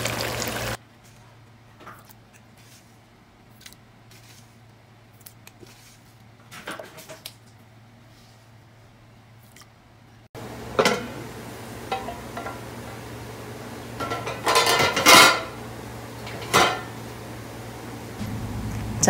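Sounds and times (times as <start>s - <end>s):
steady low hum: 7.6s - 19.0s
metal utensils clinking on a pot: 10.8s - 11.1s, 11.9s - 12.6s, 14.0s - 15.5s, 16.2s - 16.9s.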